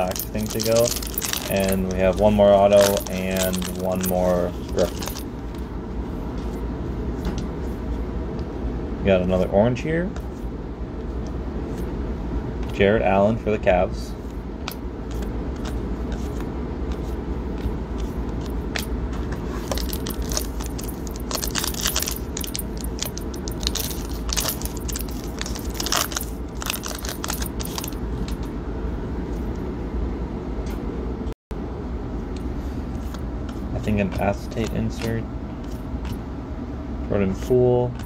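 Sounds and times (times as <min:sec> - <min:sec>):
plastic wrapper crinkling: 0:00.0 - 0:04.1, 0:19.7 - 0:28.0
steady low hum: 0:00.0 - 0:38.0.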